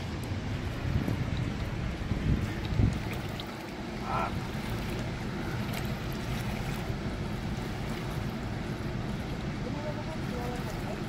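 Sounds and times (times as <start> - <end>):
river water rushing: 0.0 - 11.0
wind rumble on microphone: 0.0 - 11.0.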